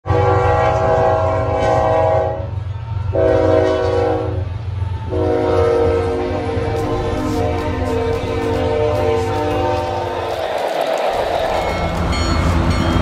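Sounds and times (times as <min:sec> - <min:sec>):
locomotive air horn blasts: 0:00.0 - 0:10.3
passing train rumble: 0:00.0 - 0:13.0.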